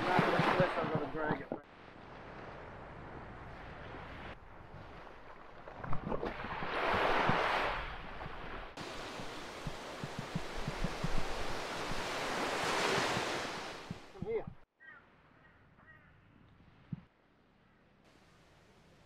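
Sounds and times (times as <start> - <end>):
small waves washing up beach: 0.0 - 14.4
wind buffeting microphone: 5.8 - 14.6.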